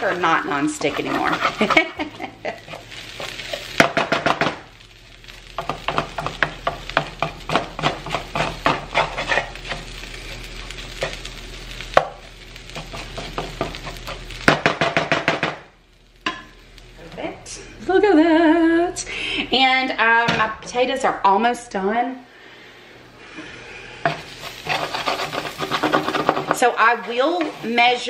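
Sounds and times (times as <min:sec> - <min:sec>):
wooden spatula scraping skillet: 0:00.0 - 0:04.5, 0:05.6 - 0:11.3, 0:12.6 - 0:14.4, 0:23.4 - 0:28.0
potatoes frying: 0:00.0 - 0:21.4, 0:22.4 - 0:28.0.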